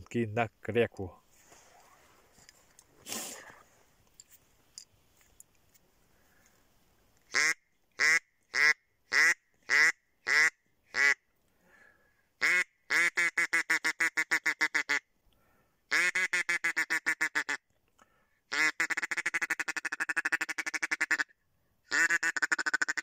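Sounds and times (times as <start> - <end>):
duck call quacks: 7.3 - 11.2, 12.4 - 15.0, 15.9 - 17.6, 18.5 - 21.3, 21.9 - 23.0.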